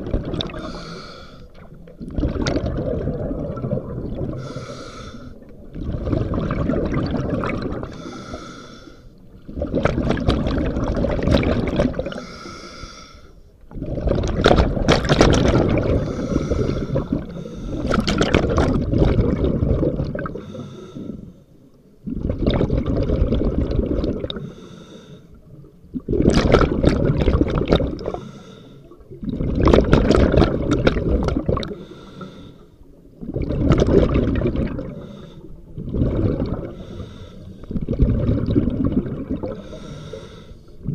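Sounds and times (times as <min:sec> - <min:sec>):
exhaled bubbles rushing: 0:00.0 - 0:00.9, 0:01.6 - 0:04.6, 0:05.4 - 0:08.0, 0:09.3 - 0:12.2, 0:13.7 - 0:20.4, 0:22.0 - 0:24.5, 0:25.9 - 0:28.2, 0:29.0 - 0:31.9, 0:33.1 - 0:35.1, 0:35.7 - 0:36.8, 0:37.6 - 0:39.8
diver inhaling through regulator: 0:00.4 - 0:01.7, 0:04.3 - 0:05.4, 0:07.8 - 0:09.2, 0:12.0 - 0:13.5, 0:15.7 - 0:18.1, 0:20.2 - 0:21.6, 0:24.3 - 0:25.4, 0:28.0 - 0:29.0, 0:31.6 - 0:32.8, 0:34.8 - 0:37.8, 0:39.4 - 0:40.9.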